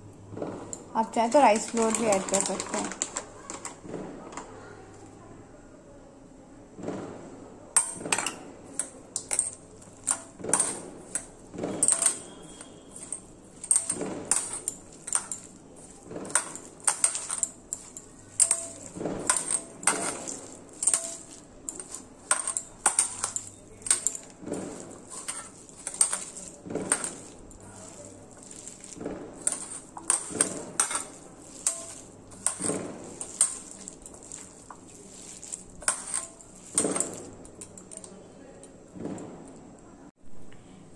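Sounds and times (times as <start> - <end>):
metallic clinks against bowl: 7.8 - 38.7.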